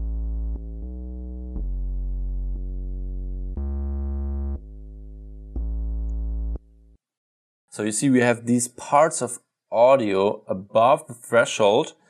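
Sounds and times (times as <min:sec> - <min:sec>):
synth bass notes: 0:00.0 - 0:07.0.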